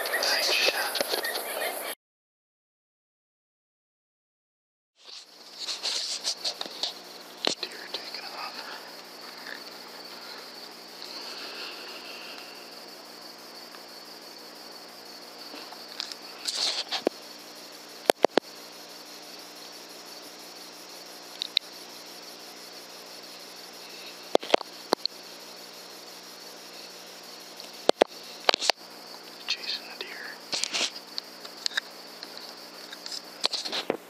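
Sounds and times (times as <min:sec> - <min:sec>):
crickets chirring: 0:00.0 - 0:02.0, 0:05.0 - 0:34.0
rustle: 0:05.0 - 0:07.8.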